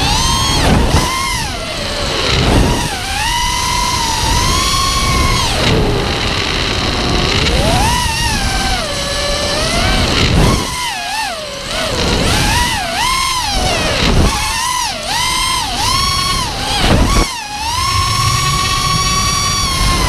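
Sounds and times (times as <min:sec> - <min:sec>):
quadcopter motors whining: 0:00.0 - 0:20.0
wind rumble on microphone: 0:00.0 - 0:20.0.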